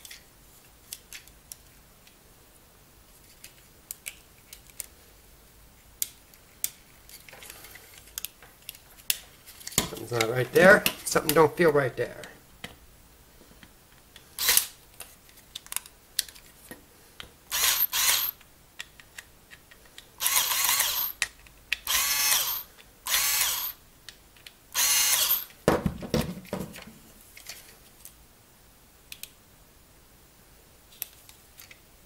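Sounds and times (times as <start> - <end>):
electric screwdriver whirring: 14.4 - 14.7, 17.5 - 18.4, 20.2 - 21.2, 21.9 - 23.8, 24.8 - 25.5.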